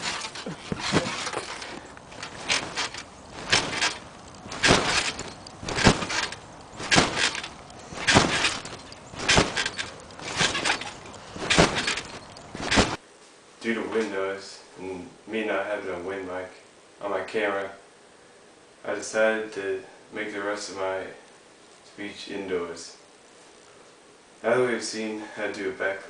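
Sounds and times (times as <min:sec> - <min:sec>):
trampoline springs bouncing: 0:00.0 - 0:13.0.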